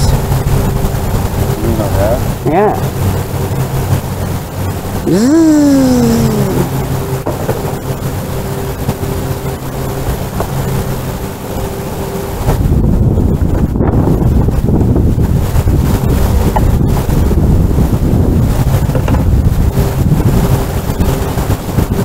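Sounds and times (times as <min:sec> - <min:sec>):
low engine hum: 0:00.0 - 0:22.0
wind buffeting microphone: 0:00.0 - 0:22.0
rising and sliding pitched sound: 0:05.0 - 0:12.4.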